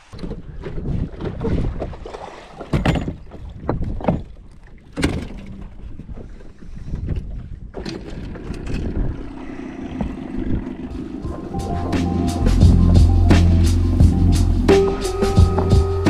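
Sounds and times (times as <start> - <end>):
wind on microphone: 0.0 - 2.2, 5.6 - 16.0.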